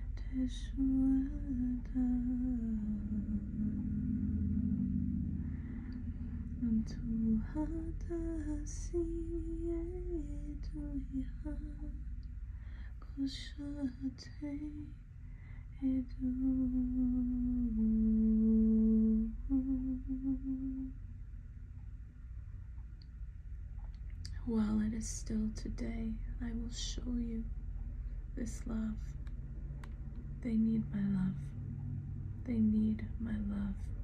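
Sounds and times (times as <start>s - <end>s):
woman humming: 0.3s - 5.6s, 15.8s - 21.0s.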